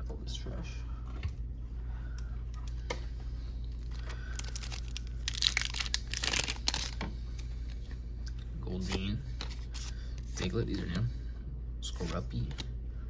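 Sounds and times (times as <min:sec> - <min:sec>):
foil wrapper crinkling and tearing: 0:03.7 - 0:07.0.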